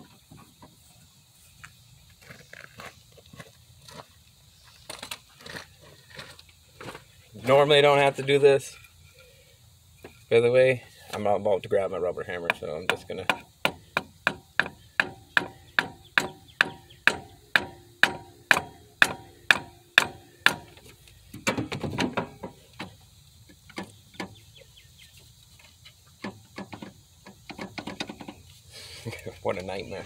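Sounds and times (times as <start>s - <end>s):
rubber hammer knocking on wood: 12.9s - 20.8s.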